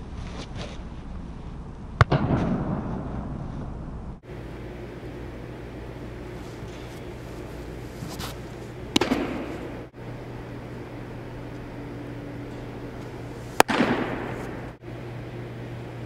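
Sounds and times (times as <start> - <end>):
steady low hum: 0.0 - 16.0
baseball smacking into leather mitt: 8.9 - 9.8, 13.6 - 14.6.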